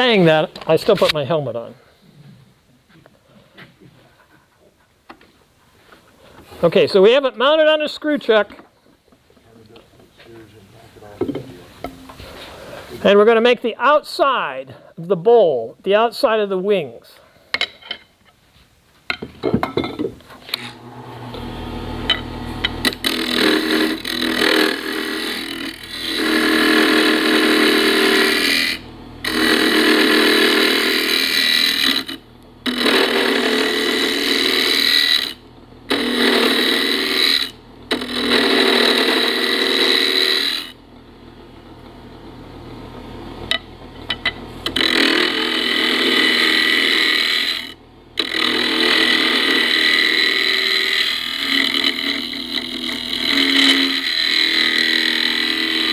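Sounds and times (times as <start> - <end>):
turning tool cutting wood: 20.4 - 40.8, 43.5 - 55.9
wood lathe running: 20.7 - 40.8, 43.5 - 55.9.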